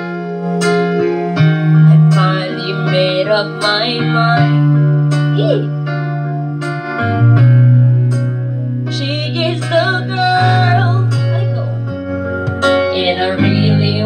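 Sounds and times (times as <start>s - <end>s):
woman singing into a microphone: 1.9s - 4.8s, 8.9s - 12.0s, 12.6s - 14.0s.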